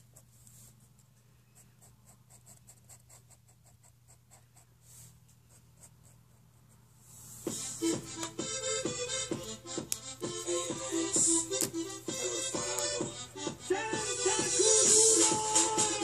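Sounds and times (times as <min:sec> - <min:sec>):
felt-tip marker scratching on paper: 0:00.0 - 0:07.5
music: 0:07.5 - 0:16.0.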